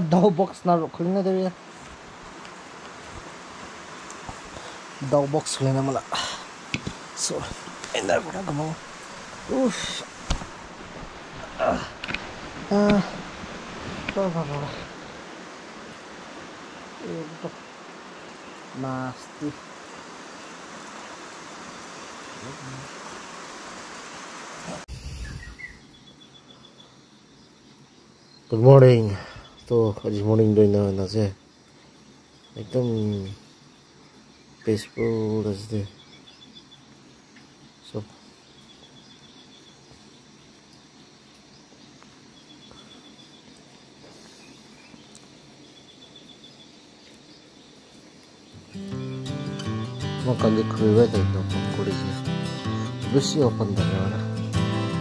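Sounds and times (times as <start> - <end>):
rain hissing: 0.0 - 55.0
pulsed insect trill: 4.6 - 13.4, 24.9 - 55.0
music: 48.7 - 55.0.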